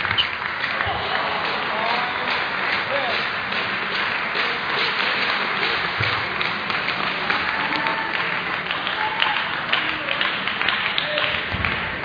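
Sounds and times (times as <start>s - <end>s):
table tennis balls clicking: 0.0s - 0.7s
sports hall noise: 0.0s - 12.0s
murmur of voices: 0.6s - 12.0s.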